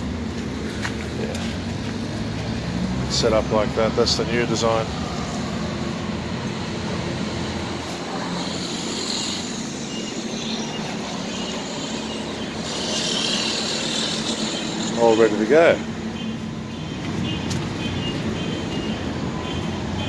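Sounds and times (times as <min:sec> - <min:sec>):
outdoor background noise: 0:00.0 - 0:20.0
machinery hum: 0:05.2 - 0:15.0
hiss: 0:08.0 - 0:14.9.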